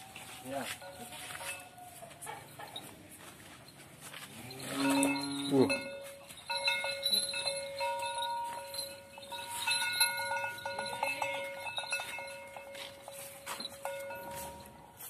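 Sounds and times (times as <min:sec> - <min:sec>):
bell clanking: 0:00.6 - 0:15.0
bull mooing: 0:04.4 - 0:05.9.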